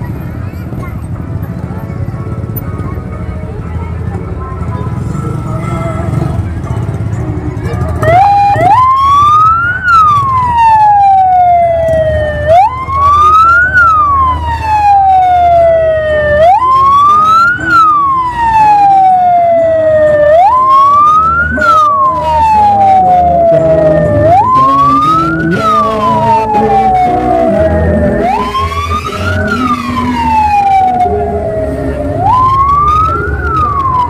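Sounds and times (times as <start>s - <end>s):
siren wailing: 8.0s - 34.0s.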